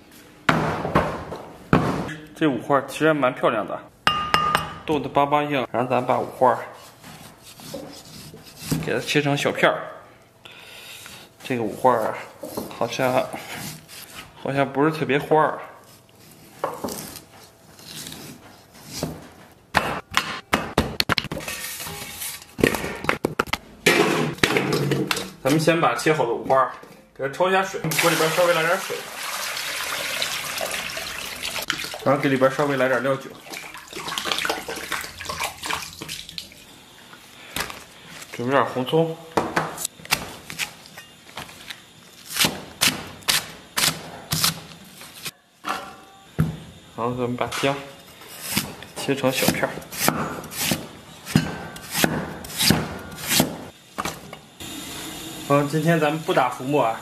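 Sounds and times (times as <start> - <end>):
cleaver chopping on wooden block: 49.4 - 53.6.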